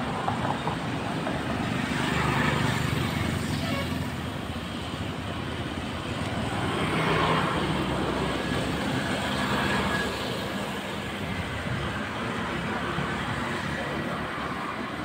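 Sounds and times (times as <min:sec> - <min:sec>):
scooters and motorbikes passing: 0:00.0 - 0:15.0.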